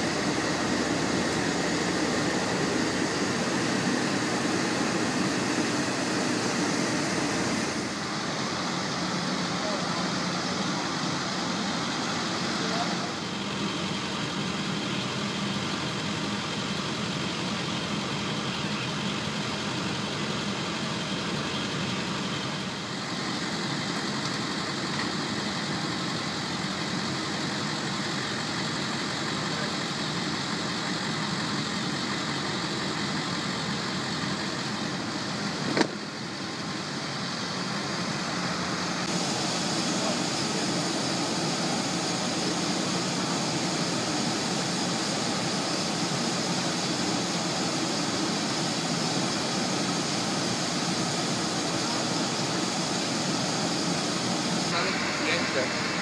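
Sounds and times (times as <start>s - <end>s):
engines and machinery droning: 0.0s - 56.0s.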